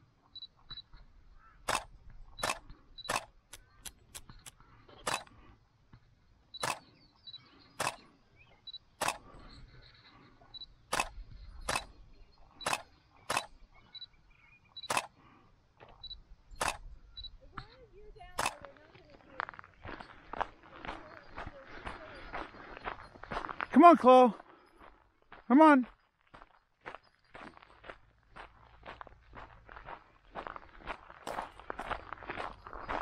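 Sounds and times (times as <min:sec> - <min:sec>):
sharp clicks: 0:01.6 - 0:05.4, 0:06.6 - 0:07.0, 0:07.8 - 0:08.1, 0:09.0 - 0:09.4, 0:10.9 - 0:12.0, 0:12.6 - 0:13.6, 0:14.8 - 0:15.2, 0:15.8 - 0:17.7, 0:18.3 - 0:18.8.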